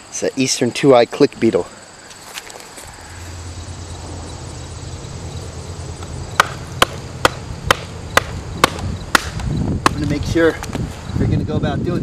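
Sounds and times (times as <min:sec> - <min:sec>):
low rumble: 0:02.9 - 0:09.8
stick knocking on log: 0:06.4 - 0:10.2.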